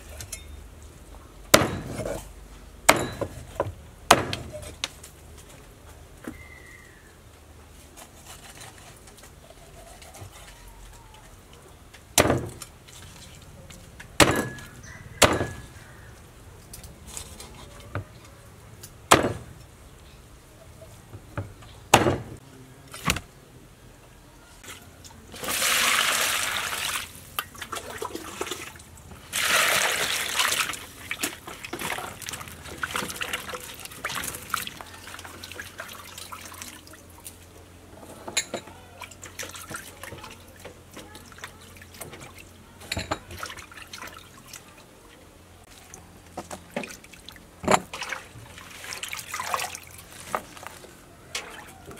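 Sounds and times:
cleaver chopping on wooden block: 1.5 - 2.0, 4.1 - 4.5, 14.2 - 15.6
water pouring into a pot: 25.4 - 27.1, 29.3 - 31.2.

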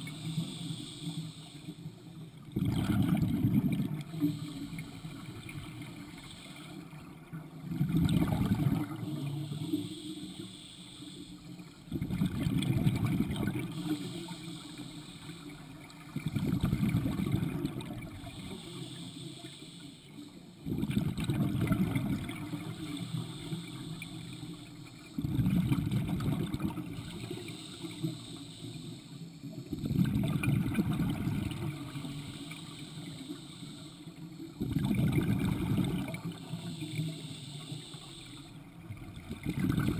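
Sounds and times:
regulator hiss: 0.0 - 2.5, 3.9 - 7.1, 8.7 - 12.0, 12.7 - 16.1, 17.1 - 20.7, 22.0 - 25.2, 26.8 - 30.0, 30.6 - 38.9
exhaled bubbles underwater: 0.0 - 19.6, 20.6 - 39.9.

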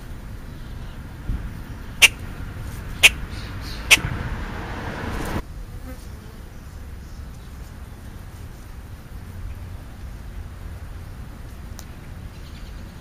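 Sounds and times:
crow tapping: 2.0 - 2.3, 3.0 - 4.1.

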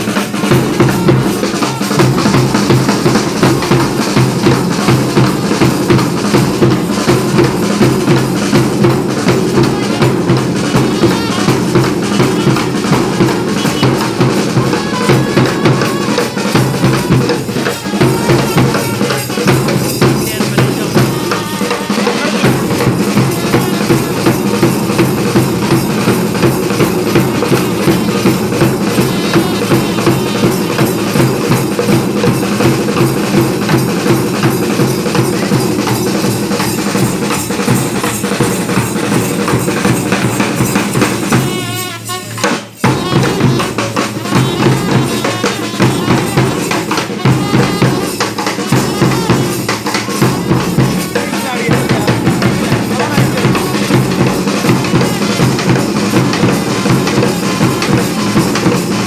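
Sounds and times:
trumpet playing: 0.0 - 4.1, 9.6 - 25.3, 26.0 - 32.9, 41.0 - 50.9, 52.7 - 58.1
bass drum beating: 0.0 - 42.0, 42.8 - 59.0
snare drums rolling: 0.0 - 59.0.

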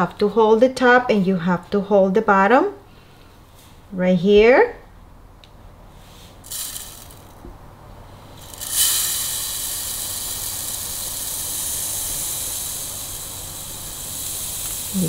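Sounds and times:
sand pouring into bottle: 6.4 - 7.3, 8.4 - 15.0.

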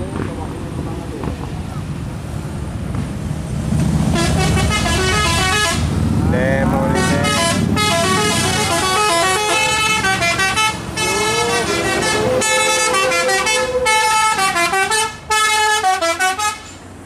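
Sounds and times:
bus engine running: 0.0 - 17.0
bus horn playing a tune: 4.1 - 6.0, 6.8 - 16.8.

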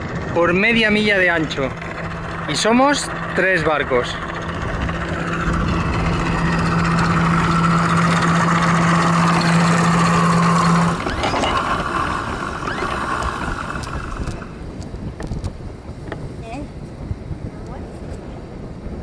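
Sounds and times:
electric anchor windlass humming: 0.0 - 19.0
steady rushing noise: 0.0 - 19.0.

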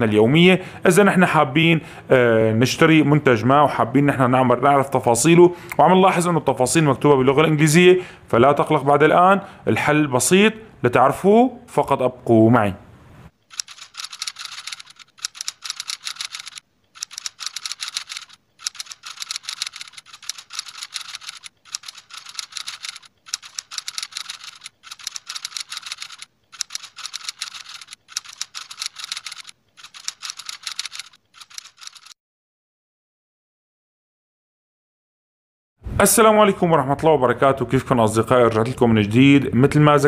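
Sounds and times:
keyboard typing: 13.4 - 32.2.

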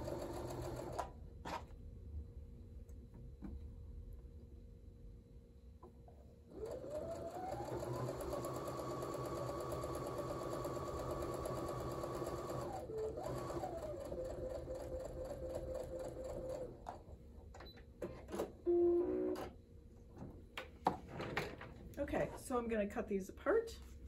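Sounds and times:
sewing machine stitching: 6.5 - 17.0.

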